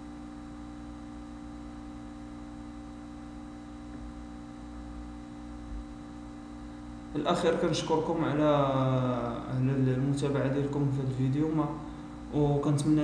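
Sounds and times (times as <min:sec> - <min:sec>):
electrical hum with faint hiss: 0:00.0 - 0:13.0.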